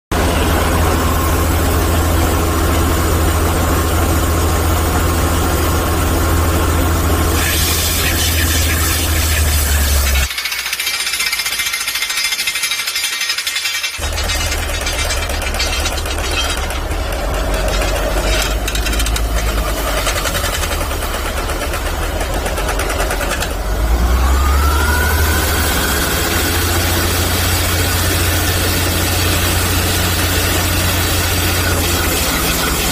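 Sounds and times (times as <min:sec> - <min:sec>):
diesel engine running: 0:00.1 - 0:12.7, 0:13.4 - 0:32.9
rising whine: 0:23.8 - 0:27.8.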